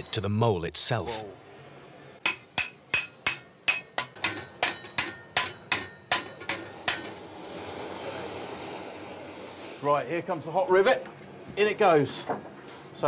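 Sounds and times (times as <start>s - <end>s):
hammer striking iron on anvil: 2.2s - 7.2s.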